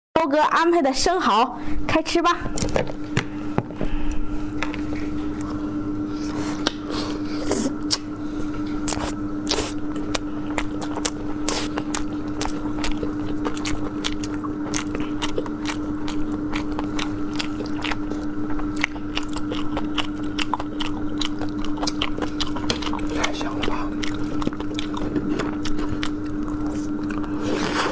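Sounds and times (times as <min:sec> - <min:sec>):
steady low hum: 0:00.2 - 0:27.9
wet chewing: 0:04.0 - 0:27.9
lip smacks: 0:06.5 - 0:08.1, 0:08.8 - 0:27.9.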